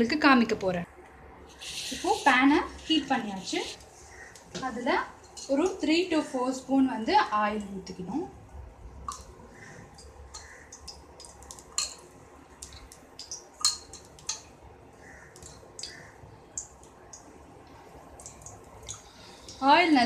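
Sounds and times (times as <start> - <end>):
oil dripping into hot pan: 9.0 - 19.6.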